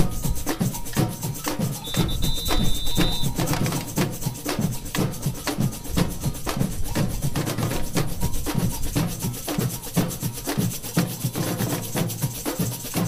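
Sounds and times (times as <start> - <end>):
drum band playing: 0.0 - 13.0
shaker strokes: 0.0 - 13.0
snare drum strokes: 0.0 - 13.0.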